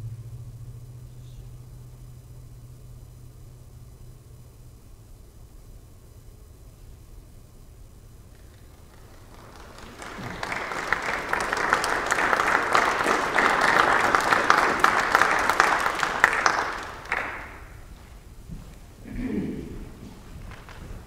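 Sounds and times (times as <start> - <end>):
audience applauding: 8.3 - 17.9, 20.4 - 20.8.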